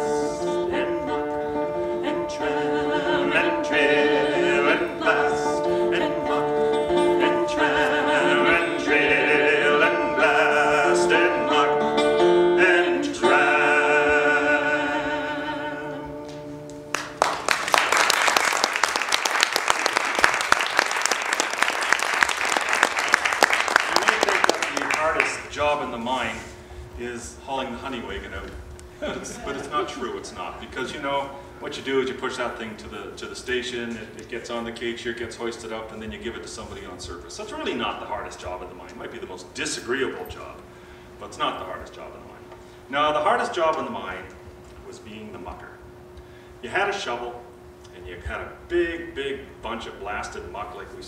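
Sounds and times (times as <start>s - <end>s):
acoustic folk band playing: 0.0s - 17.2s
audience applauding: 16.9s - 25.5s.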